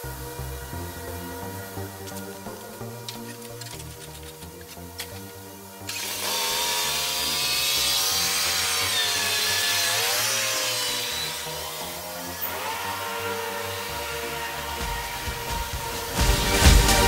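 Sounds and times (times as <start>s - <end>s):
small petrol engine running: 5.9s - 17.0s.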